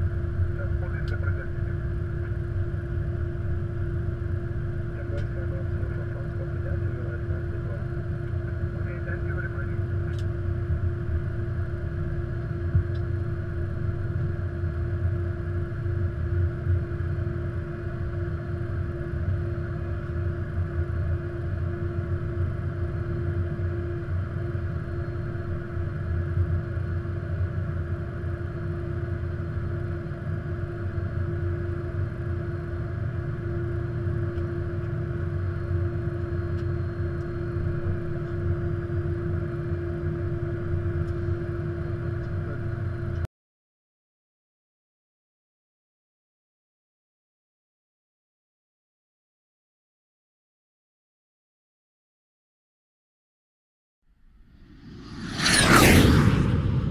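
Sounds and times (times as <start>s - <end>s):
steady hum: 0.0s - 25.9s, 54.5s - 56.9s
cockpit low rumble: 0.0s - 43.3s, 54.1s - 56.9s.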